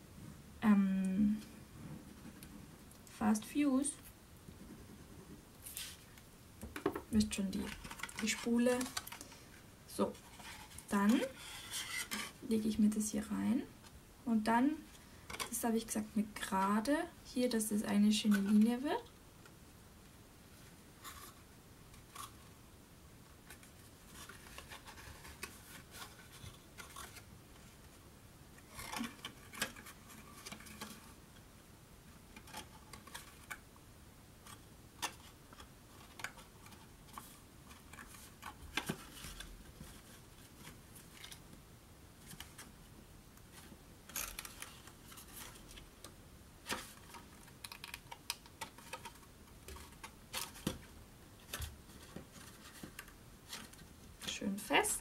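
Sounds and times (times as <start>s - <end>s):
cardstock rustling and clicking: 6.6s - 9.4s, 28.6s - 31.2s, 34.4s - 41.4s, 43.5s - 54.3s.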